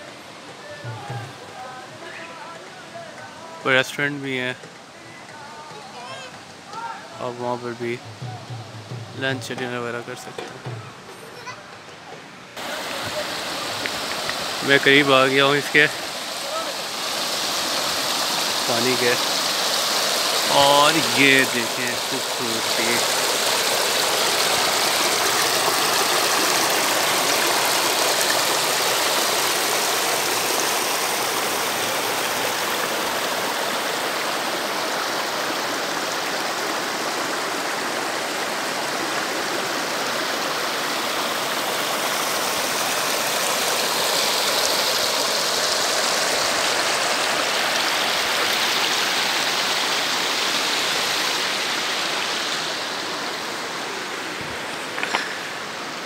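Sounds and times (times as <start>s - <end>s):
stream water rushing over stones: 12.5s - 56.0s.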